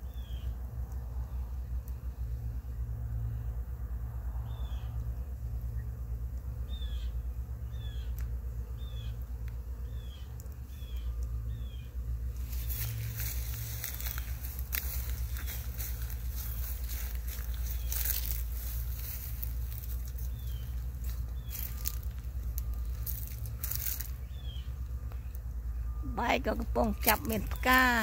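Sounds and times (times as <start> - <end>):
crackling rustle: 0.0 - 28.0
steady low rumble: 0.0 - 28.0
bird calling with high notes: 19.8 - 28.0.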